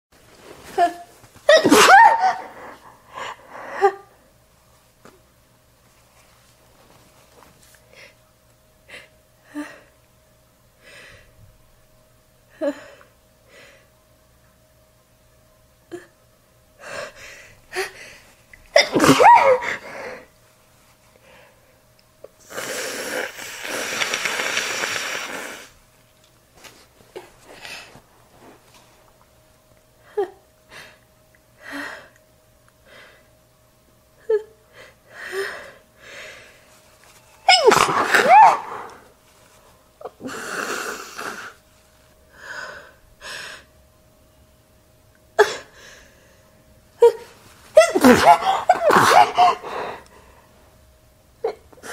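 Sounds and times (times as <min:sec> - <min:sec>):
woman sneezing: 0:00.7 - 0:02.8, 0:18.8 - 0:19.9, 0:37.4 - 0:39.0, 0:47.0 - 0:49.9.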